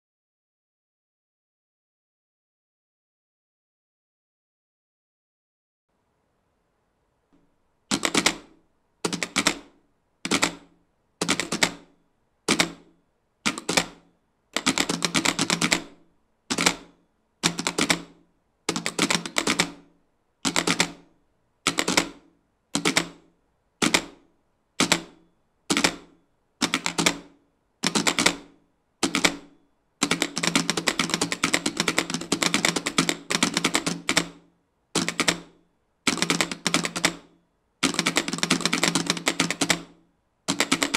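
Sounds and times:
telegraph keys clicking: 7.9 - 9.7, 10.3 - 11.9, 12.5 - 12.9, 13.5 - 15.9, 16.5 - 18.1, 18.7 - 19.8, 20.4 - 21.0, 21.7 - 22.2, 22.8 - 23.2, 24.8 - 27.2, 27.8 - 28.4, 29.0 - 34.4, 35.0 - 40.9.

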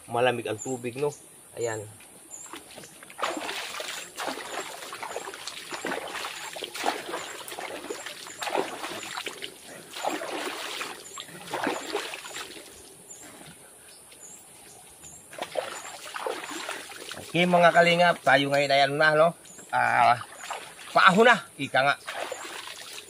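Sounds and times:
water splashing and dripping: 2.4 - 13.0, 15.3 - 19.0, 19.6 - 23.0.

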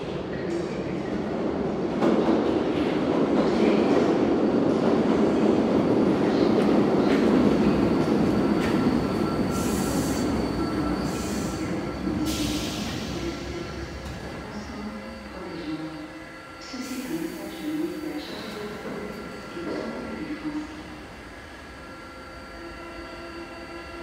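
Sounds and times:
train wheels rumbling on rails: 0.0 - 15.8
faint steady squeal tones: 7.0 - 24.0.

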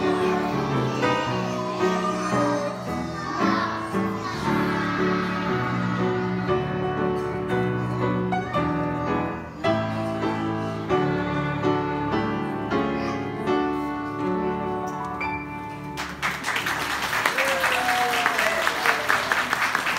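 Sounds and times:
children singing: 0.0 - 14.6
upright piano playing: 0.0 - 16.6
applause: 16.0 - 19.9.

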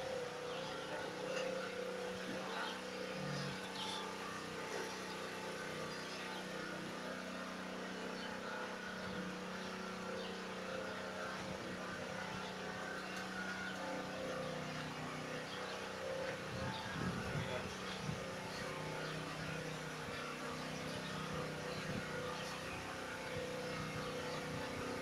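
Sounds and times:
motor humming: 0.0 - 25.0.

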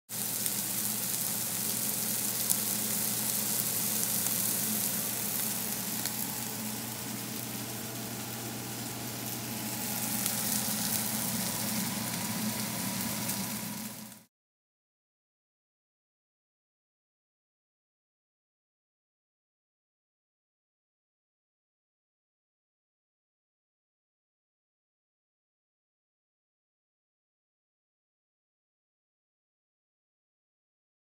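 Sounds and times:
sausage sizzling in a pan: 0.1 - 14.3.

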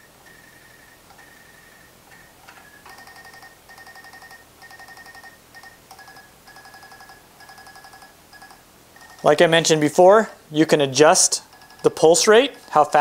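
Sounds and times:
thin high whine: 0.0 - 10.0.

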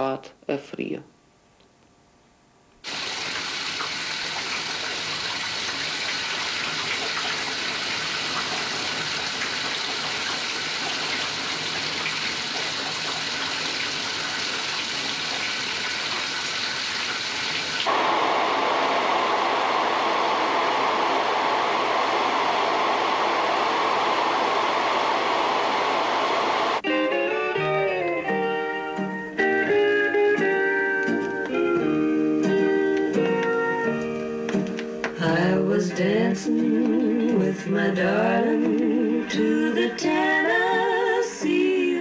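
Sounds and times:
shower spray running: 2.8 - 26.8
hood hair dryer blower: 17.8 - 26.9
low hum: 17.9 - 26.8.

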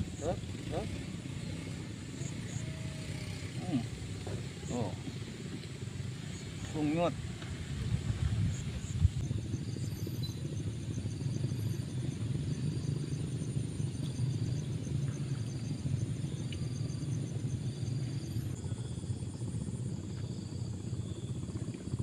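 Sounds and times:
insects chirping: 0.0 - 22.0
steady low rumble: 3.6 - 22.0.

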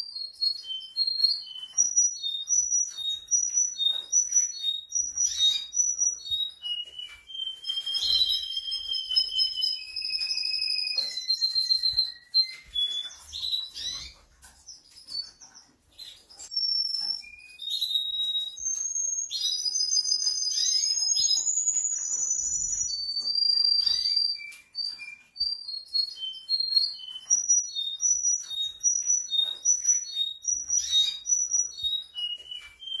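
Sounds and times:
canary singing: 0.0 - 33.0.

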